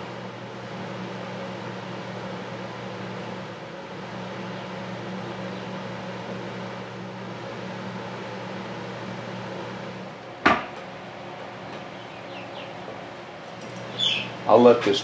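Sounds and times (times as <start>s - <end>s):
machine hum: 0.0s - 15.0s
sharp knock: 10.4s - 10.7s.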